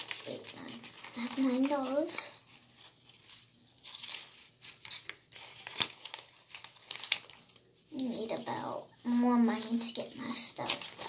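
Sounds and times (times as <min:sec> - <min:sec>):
paper bills snapping: 0:00.0 - 0:02.3, 0:03.8 - 0:08.1, 0:09.6 - 0:11.0
paper bills rustling: 0:00.0 - 0:11.0.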